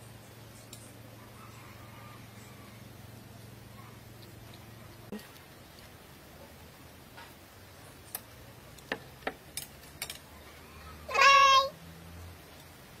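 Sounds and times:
cat meowing: 0:11.1 - 0:11.7.

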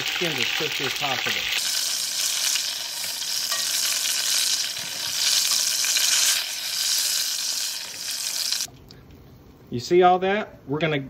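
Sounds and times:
chicken sizzling in hot oil: 0:00.0 - 0:08.7.

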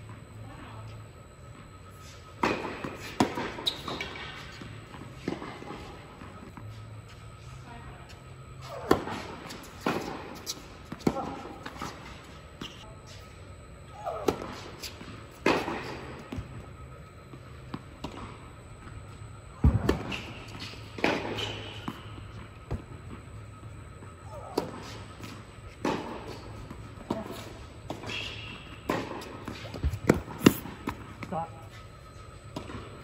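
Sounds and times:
rackets striking tennis ball: 0:24.3 - 0:31.4
tennis ball bouncing: 0:28.9 - 0:31.1.

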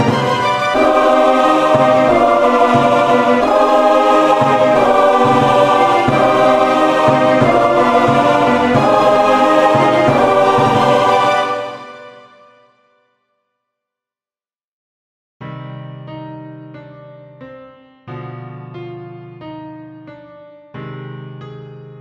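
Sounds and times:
choir singing held chords: 0:00.0 - 0:12.4.

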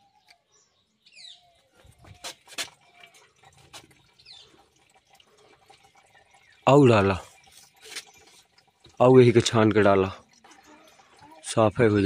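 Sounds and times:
bird chirping: 0:00.0 - 0:03.2.

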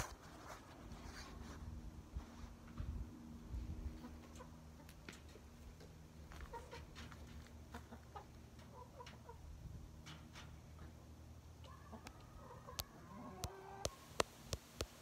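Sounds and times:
hens clucking: 0:03.9 - 0:14.3.

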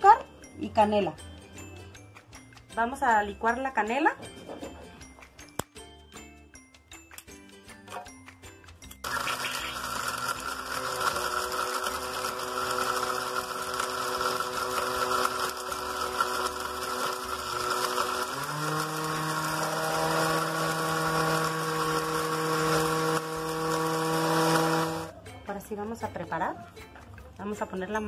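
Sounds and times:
blender motor running: 0:09.0 - 0:25.1.

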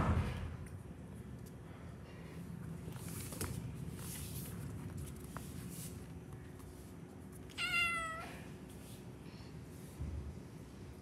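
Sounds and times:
kitten meowing: 0:07.6 - 0:08.3.

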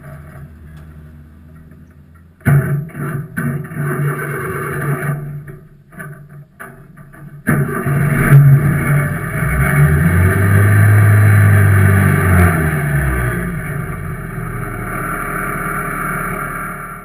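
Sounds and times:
steady quieter engine: 0:00.0 - 0:02.5, 0:07.9 - 0:17.0
loud race car engine: 0:00.0 - 0:05.2, 0:07.5 - 0:17.0.

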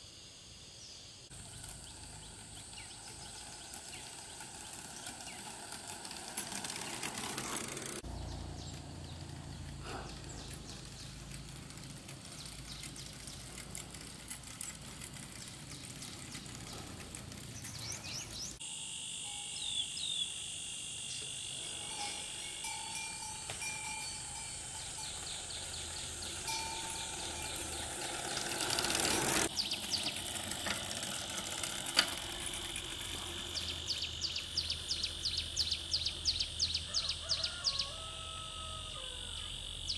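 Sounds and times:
steady high buzz: 0:16.6 - 0:36.8.

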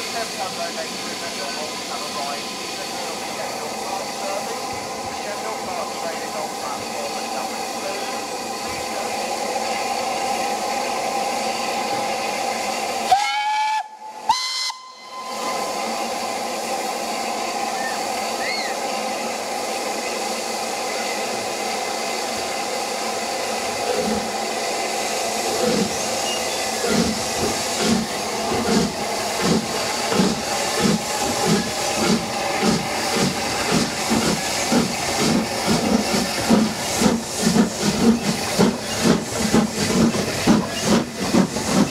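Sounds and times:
steam locomotive hissing: 0:00.0 - 0:41.9
steam whistle: 0:13.1 - 0:15.5.

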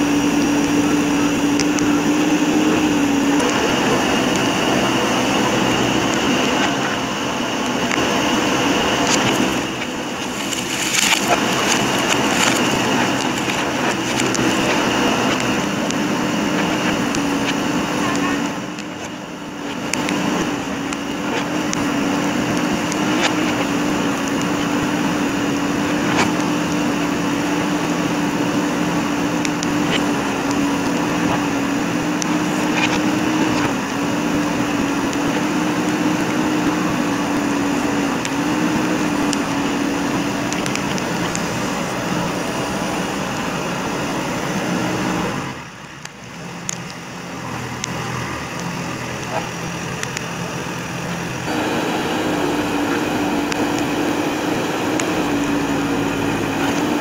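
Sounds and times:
diesel engine running: 0:00.0 - 0:57.0
sharp cracks and clicks: 0:00.3 - 0:25.3, 0:38.1 - 0:42.4, 0:45.8 - 0:51.5.

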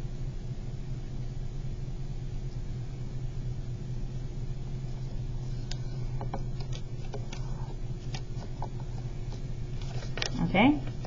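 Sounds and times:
steady low hum: 0:00.0 - 0:11.0
paper crackling and creasing: 0:05.5 - 0:11.0.

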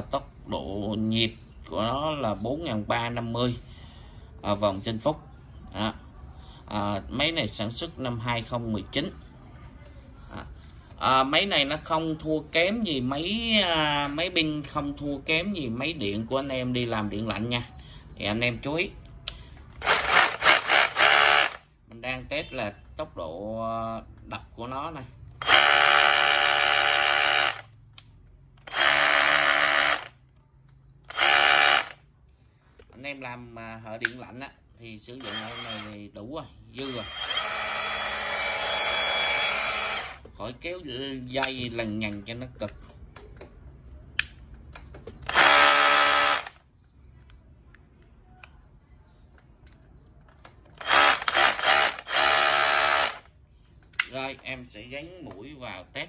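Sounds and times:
rotary hammer motor whine: 0:19.8 - 0:21.6, 0:25.4 - 0:27.7, 0:28.6 - 0:30.1, 0:31.1 - 0:32.0, 0:35.2 - 0:36.0, 0:36.8 - 0:40.2, 0:45.3 - 0:46.5, 0:50.8 - 0:53.3.

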